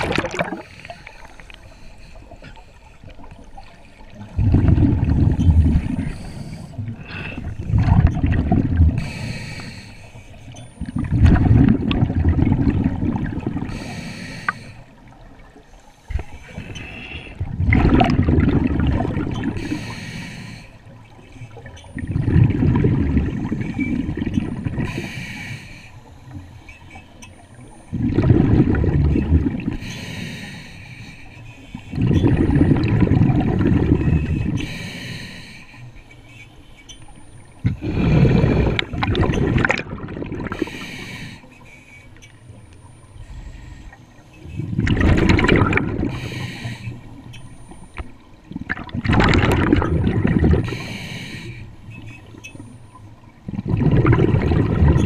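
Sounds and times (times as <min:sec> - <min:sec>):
bubble exhalations underwater: 0:00.0 - 0:00.7, 0:04.3 - 0:06.1, 0:07.1 - 0:09.0, 0:10.9 - 0:13.7, 0:17.4 - 0:19.6, 0:22.1 - 0:24.8, 0:27.9 - 0:29.8, 0:32.0 - 0:34.5, 0:37.6 - 0:40.6, 0:44.7 - 0:46.1, 0:48.5 - 0:50.7, 0:53.5 - 0:55.0
regulator inhalation hiss: 0:06.0 - 0:07.4, 0:09.0 - 0:10.6, 0:13.7 - 0:15.0, 0:19.6 - 0:21.4, 0:24.9 - 0:27.0, 0:29.8 - 0:32.0, 0:34.4 - 0:36.8, 0:40.5 - 0:42.2, 0:46.1 - 0:47.2, 0:50.6 - 0:51.9.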